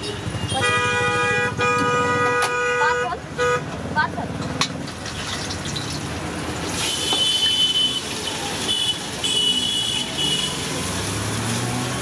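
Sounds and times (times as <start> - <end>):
wok burner and oil hissing: 4.8 - 12.0.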